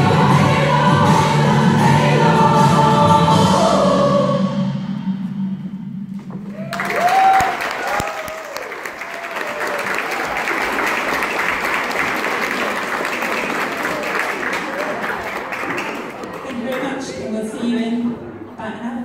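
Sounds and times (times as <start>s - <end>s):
choir singing held chord: 0.0s - 5.3s
audience whooping: 6.4s - 16.3s
audience applause: 6.5s - 17.0s.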